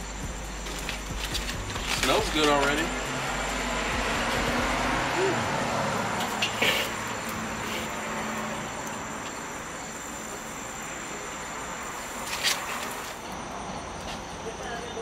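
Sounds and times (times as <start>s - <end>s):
chicken sizzling on a grill: 5.9s - 13.1s.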